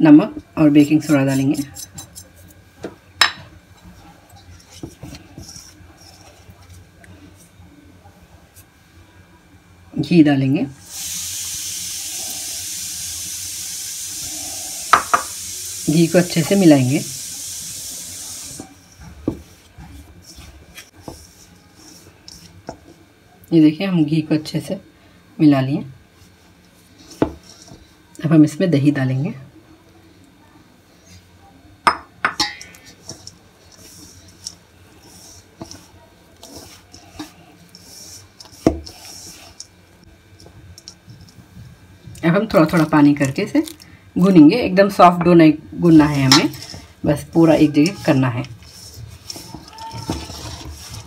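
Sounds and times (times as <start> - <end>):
hand rubbing flour in steel bowl: 0.8 - 2.6, 3.8 - 7.6, 15.9 - 23.0, 26.2 - 28.1, 32.7 - 41.6, 45.8 - 51.0
steady hiss: 10.8 - 18.8.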